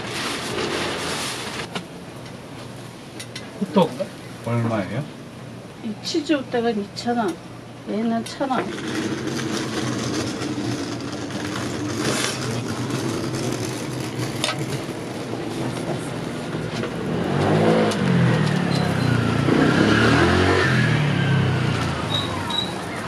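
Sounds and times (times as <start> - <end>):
vehicle engine passing: 8.6 - 23.0.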